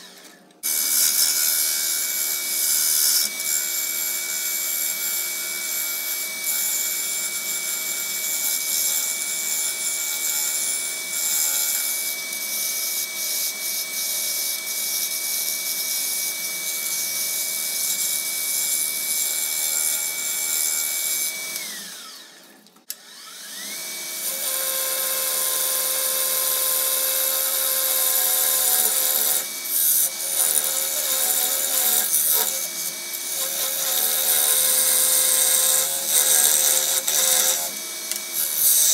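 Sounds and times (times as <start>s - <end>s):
wood lathe motor whine: 0.0s - 38.9s.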